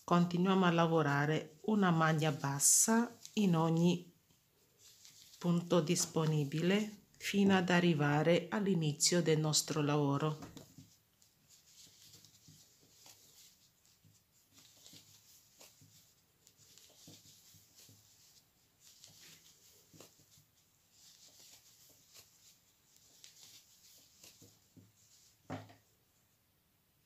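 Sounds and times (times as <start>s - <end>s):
yarn rustling with crochet hook: 0.0s - 26.4s
soft bump: 24.8s - 25.8s.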